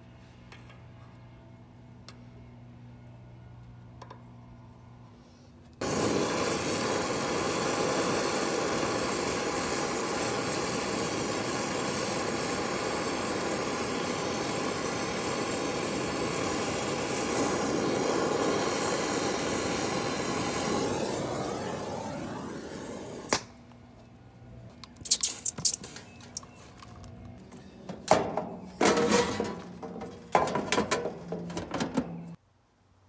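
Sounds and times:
torch flame hissing: 5.8s - 23.4s.

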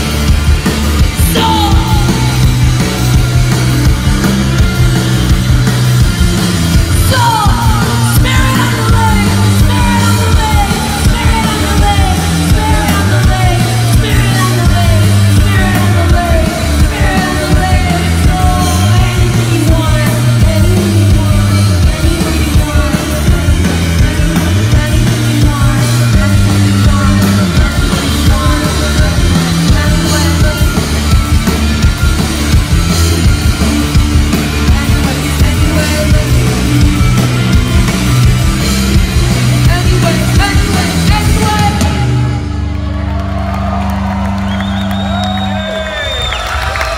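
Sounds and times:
punk rock band playing: 0.0s - 46.9s
woman shouting vocals: 7.0s - 19.5s.

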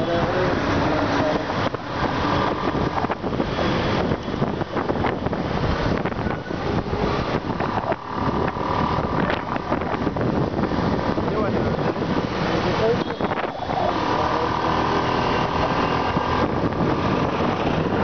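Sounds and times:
motorcycle engine: 0.0s - 18.0s
road traffic: 0.0s - 18.0s
wind rushing over microphone: 0.0s - 18.0s.

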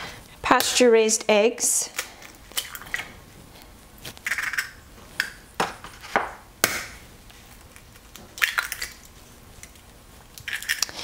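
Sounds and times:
eggshells cracking on bowl: 1.9s - 3.1s, 4.0s - 6.0s, 7.7s - 11.0s.

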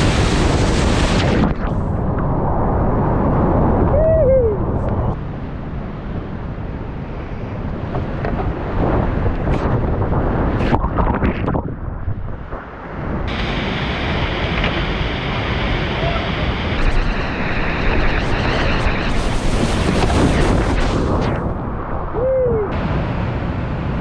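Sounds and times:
whitewater rushing through rapids: 13.3s - 17.2s.

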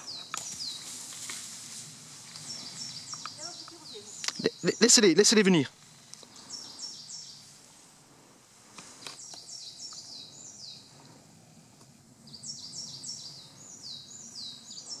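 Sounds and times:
small bird singing: 0.0s - 1.0s, 2.3s - 5.6s, 6.2s - 7.6s, 9.0s - 11.1s, 12.2s - 15.0s.

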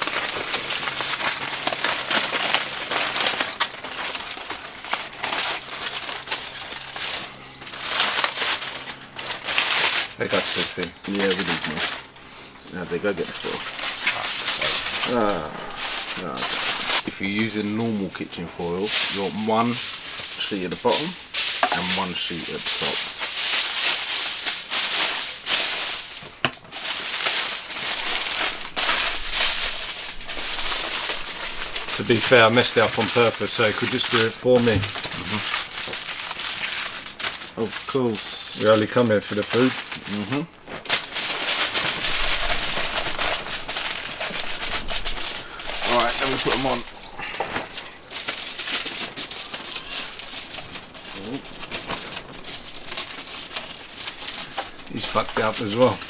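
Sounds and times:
kitchen foil crinkling: 0.0s - 56.0s.

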